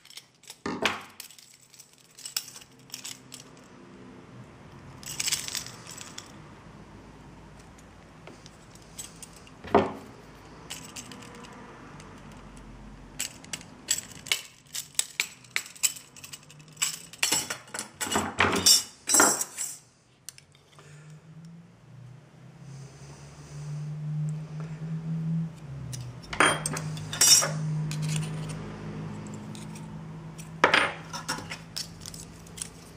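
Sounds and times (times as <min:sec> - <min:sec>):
metal parts clinking on a desk: 0:00.0 - 0:03.7, 0:05.0 - 0:06.4, 0:07.6 - 0:10.1, 0:10.7 - 0:20.8, 0:25.9 - 0:28.6, 0:29.2 - 0:32.9.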